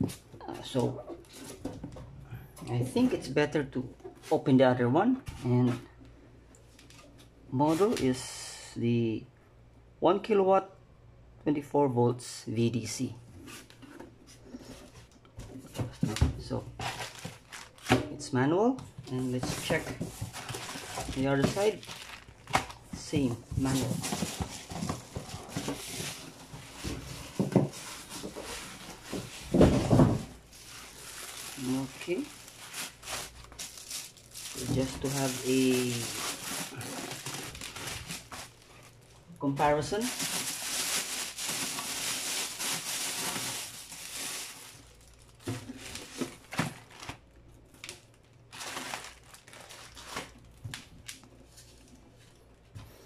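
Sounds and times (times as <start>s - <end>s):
plastic wrapping crinkling: 16.1s - 18.0s, 19.1s - 52.1s
cardboard box rustling: 19.4s - 38.7s.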